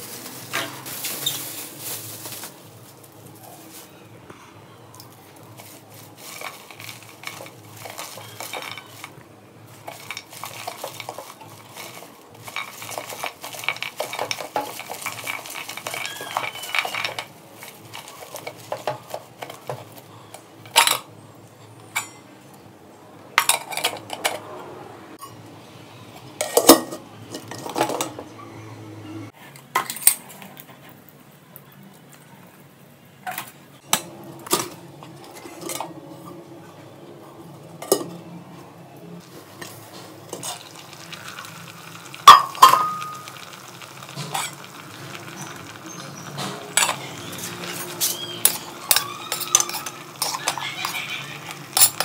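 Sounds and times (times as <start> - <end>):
leaves rustling: 0.0 - 4.2, 5.1 - 19.7, 39.2 - 52.0
metal bowls clanking together: 6.2 - 9.2, 9.8 - 20.0, 23.4 - 24.5, 39.6 - 52.0.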